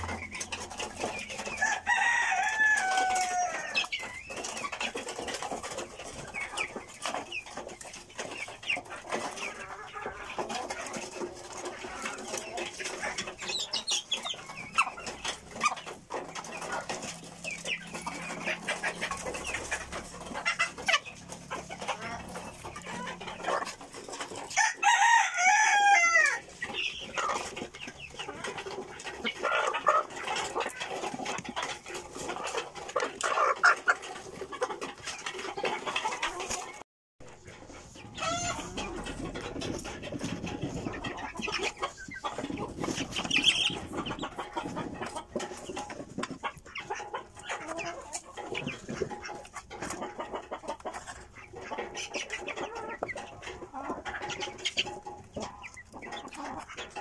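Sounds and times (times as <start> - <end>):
chickens clucking: 0.0 - 57.0
rooster crowing: 1.6 - 3.7, 24.6 - 26.4.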